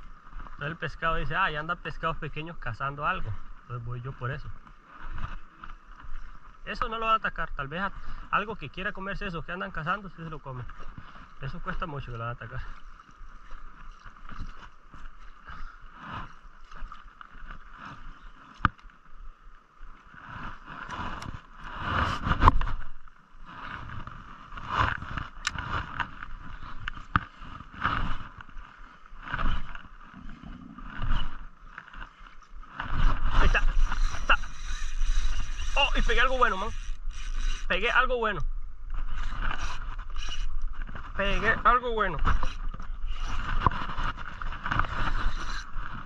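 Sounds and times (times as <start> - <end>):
water lapping at boat hull: 9.6 - 46.0
spinning reel cranking: 33.3 - 38.1, 39.1 - 44.0, 44.6 - 46.0.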